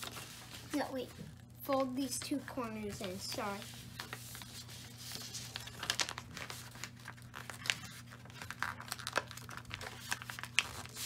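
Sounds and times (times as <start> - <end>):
paper folding and crinkling: 0.0 - 11.0.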